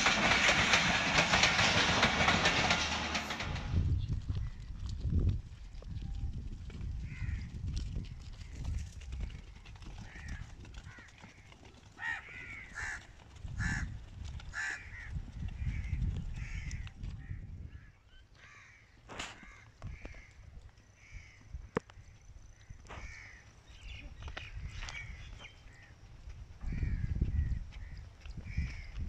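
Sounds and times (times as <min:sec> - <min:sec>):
low rumble: 0:00.0 - 0:06.3
crows cawing: 0:07.1 - 0:07.5, 0:10.0 - 0:13.9, 0:14.5 - 0:21.8, 0:22.9 - 0:23.5.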